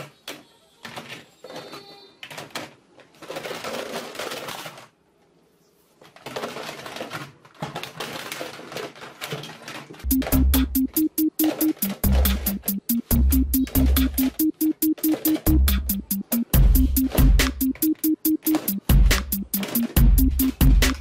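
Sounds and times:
plastic toy guns clattering: 0:00.0 - 0:05.0, 0:06.0 - 0:10.1.

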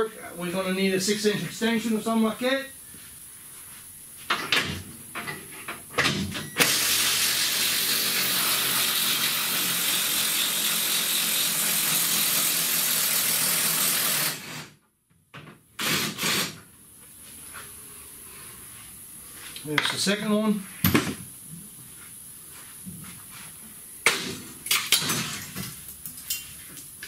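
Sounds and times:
power ratchet running: 0:06.6 - 0:14.7.

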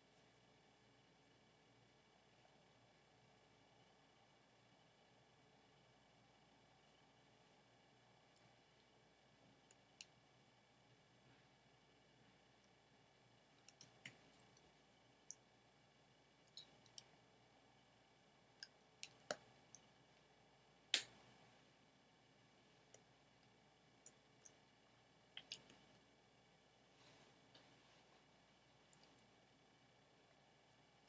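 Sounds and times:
faint clicks and taps of hands: 0:13.4 - 0:14.7, 0:25.4 - 0:25.9.

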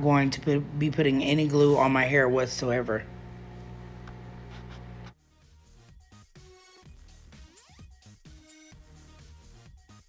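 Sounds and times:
electronic music with steady beat: 0:05.3 - 0:10.0.

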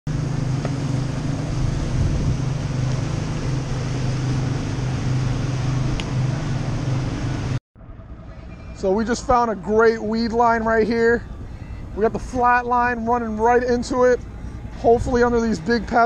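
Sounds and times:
rush of wind and water: 0:00.1 - 0:07.6
outboard motors running: 0:00.1 - 0:16.0.

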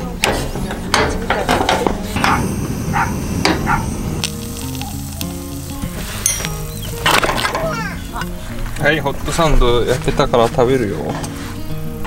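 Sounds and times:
food sizzling on burner: 0:00.4 - 0:12.0.

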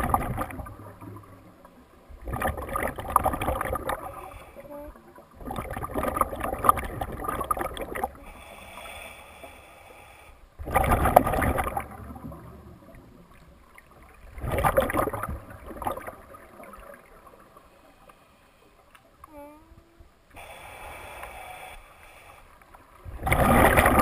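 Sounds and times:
exhaled bubbles underwater: 0:00.0 - 0:08.4, 0:10.6 - 0:17.7, 0:22.8 - 0:24.0
regulator hiss: 0:20.3 - 0:22.6.

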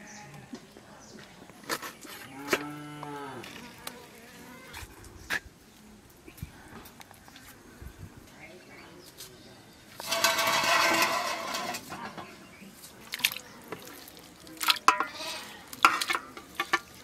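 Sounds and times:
splashing and scraping in bowl: 0:09.9 - 0:17.0
metal plate clinking on bowl: 0:10.0 - 0:12.0, 0:14.8 - 0:16.9.

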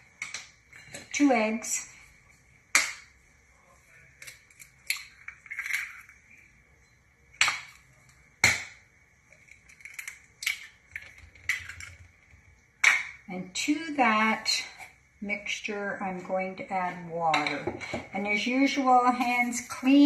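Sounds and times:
eggs cracking on a bowl: 0:02.3 - 0:03.2, 0:04.0 - 0:13.3.

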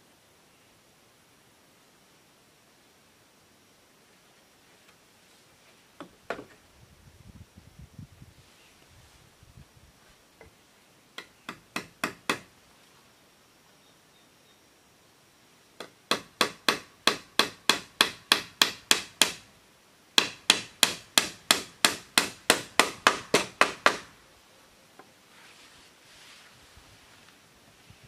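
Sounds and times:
hammer striking bamboo: 0:11.2 - 0:12.5, 0:15.8 - 0:19.5, 0:20.2 - 0:24.1.

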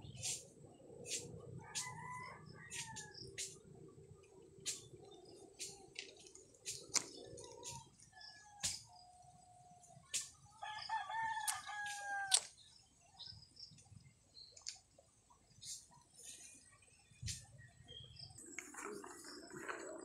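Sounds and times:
rooster crowing: 0:01.6 - 0:03.2, 0:10.6 - 0:12.4.

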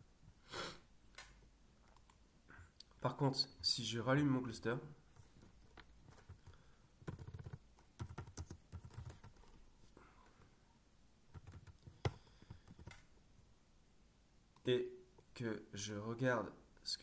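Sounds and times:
typing on a computer keyboard: 0:06.3 - 0:09.5, 0:11.3 - 0:13.1.

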